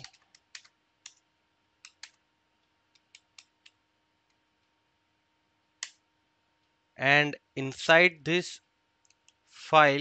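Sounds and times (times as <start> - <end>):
keyboard typing clicks: 0.0 - 1.2, 1.8 - 4.4.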